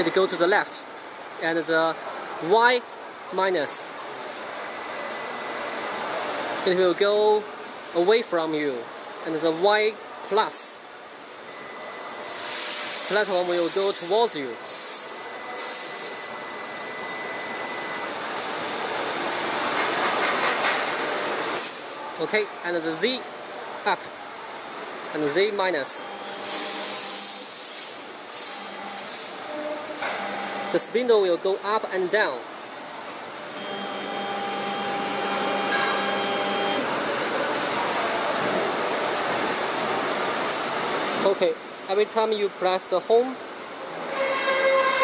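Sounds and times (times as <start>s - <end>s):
steady hiss: 0.0s - 44.2s
faint high whine: 15.2s - 18.8s, 24.8s - 32.5s, 33.5s - 36.9s
router table motor whirring: 33.6s - 36.8s.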